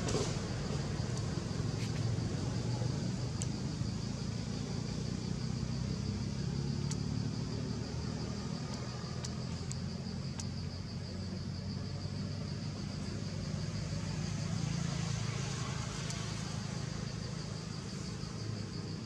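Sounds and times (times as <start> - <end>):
faint high ticks: 1.0 - 2.0, 3.3 - 3.6, 6.7 - 7.3, 8.0 - 10.8, 15.8 - 16.6.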